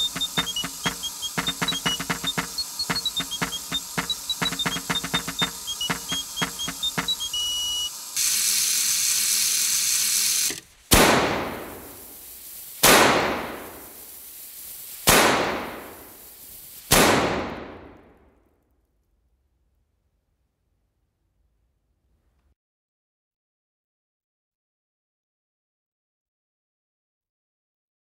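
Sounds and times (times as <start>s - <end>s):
short piped tones: 0.0s - 10.5s
clockwork clicking: 0.0s - 16.9s
steady hiss: 0.0s - 18.2s
small cannon shots: 10.9s - 12.2s, 12.8s - 14.1s, 15.0s - 18.2s.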